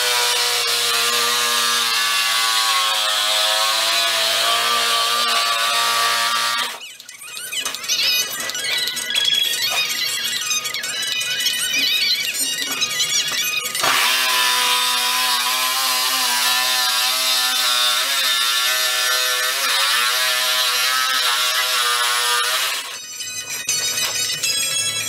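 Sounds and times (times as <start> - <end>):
reciprocating saw cutting panel: 0.0 - 6.8, 13.8 - 23.0.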